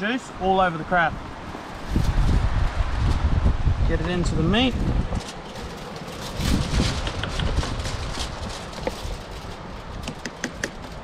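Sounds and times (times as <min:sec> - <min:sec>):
wind buffeting microphone: 0:00.9 - 0:11.0
small clicks and rustling: 0:05.1 - 0:11.0.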